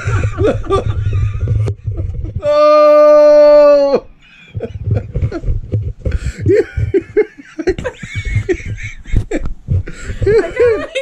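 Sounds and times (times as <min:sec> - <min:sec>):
people laughing: 0:00.0 - 0:02.4, 0:06.4 - 0:11.0.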